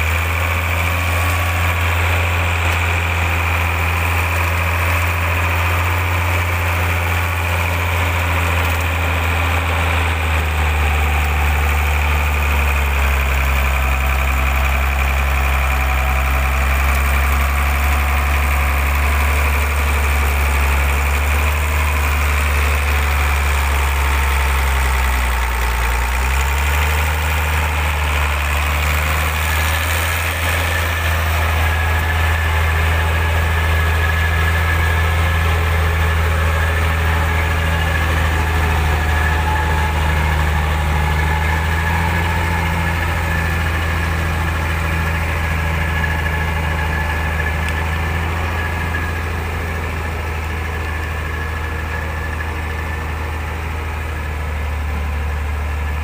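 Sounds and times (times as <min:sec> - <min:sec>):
truck diesel engine droning: 0:00.0 - 0:56.0.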